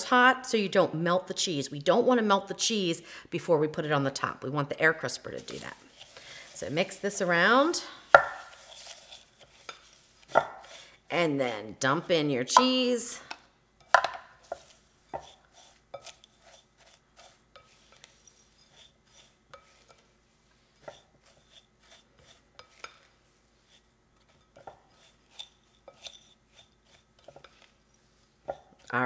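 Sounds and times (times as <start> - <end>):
spatula scraping glass bowl: 5.3 - 12.8, 14.4 - 28.9.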